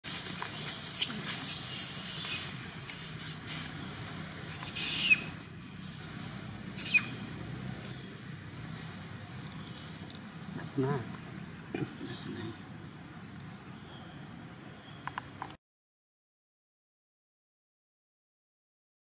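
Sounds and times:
monkey screaming: 0:00.1 - 0:03.8, 0:04.5 - 0:05.3, 0:06.8 - 0:07.1.

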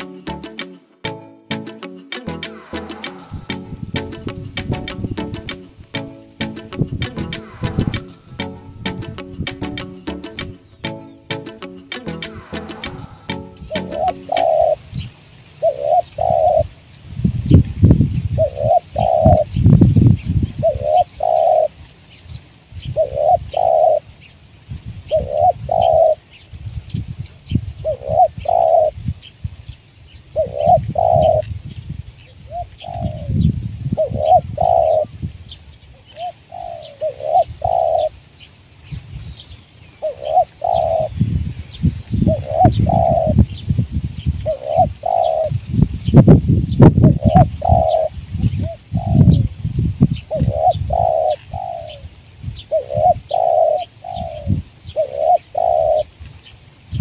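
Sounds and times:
dove cooing: 0:13.1 - 0:14.8, 0:15.6 - 0:16.7, 0:18.4 - 0:19.5, 0:20.6 - 0:21.7, 0:23.0 - 0:24.0, 0:25.1 - 0:26.2, 0:27.8 - 0:29.0, 0:30.4 - 0:31.5, 0:32.5 - 0:35.1, 0:36.1 - 0:38.2, 0:40.0 - 0:41.2, 0:42.2 - 0:43.4, 0:44.4 - 0:45.6, 0:47.0 - 0:49.5, 0:50.3 - 0:56.1.

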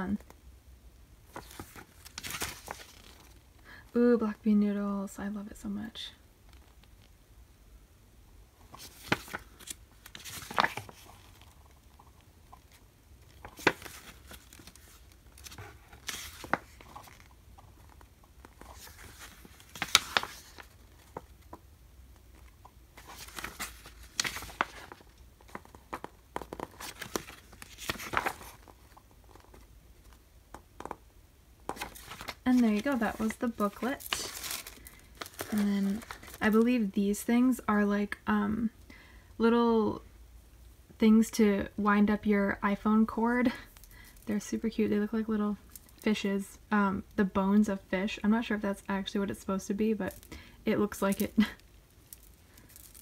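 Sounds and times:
paper pages turning: 0:01.3 - 0:03.4, 0:08.7 - 0:21.6, 0:22.3 - 0:30.2, 0:31.7 - 0:36.6.

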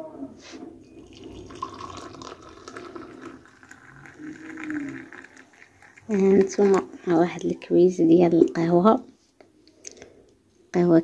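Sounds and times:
coffee pouring into mug: 0:00.8 - 0:07.8.

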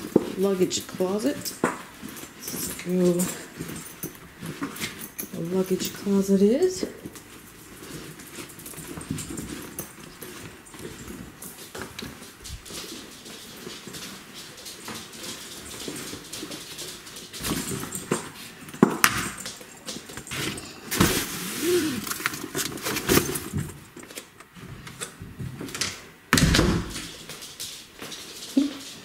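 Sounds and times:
bag rustling: 0:00.0 - 0:24.8.

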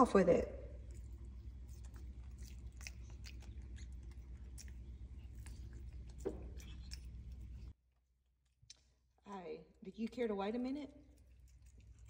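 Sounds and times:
low steady hum: 0:00.0 - 0:12.0
monkey chewing wet mouth clicks: 0:00.8 - 0:07.7, 0:11.0 - 0:12.0.

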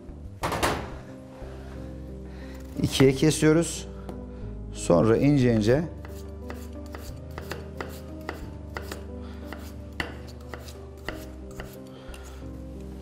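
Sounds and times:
knife chopping on cutting board: 0:06.0 - 0:12.2.

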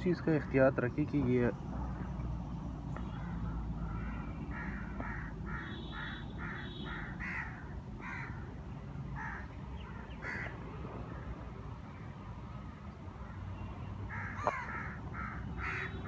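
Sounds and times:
crow cawing: 0:03.2 - 0:08.5, 0:09.2 - 0:10.5, 0:14.1 - 0:16.0.

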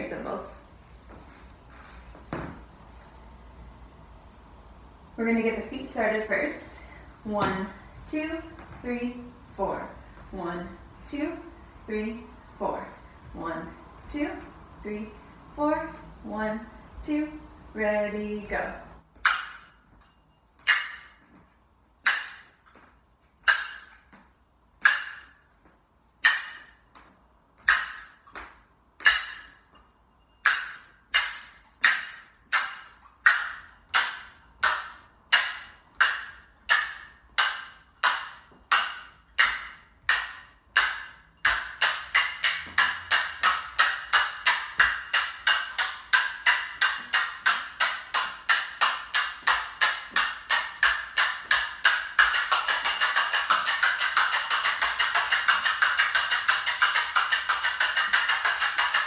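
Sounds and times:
finger cymbals ringing: 0:29.0 - 0:59.0.

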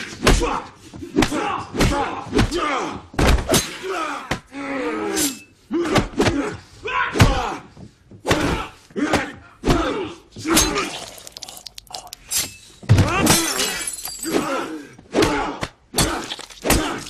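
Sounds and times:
grunts and shouts: 0:00.0 - 0:12.2, 0:13.0 - 0:17.0
glass shattering: 0:10.6 - 0:14.4, 0:16.0 - 0:17.0
punch impacts: 0:16.0 - 0:17.0.

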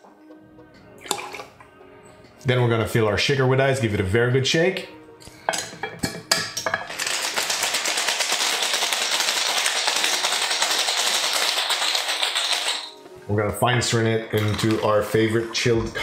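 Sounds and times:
ice cubes clinking into a glass: 0:06.9 - 0:13.0, 0:14.4 - 0:14.9
ice rattling in a cocktail shaker: 0:06.9 - 0:13.0, 0:14.4 - 0:15.2.

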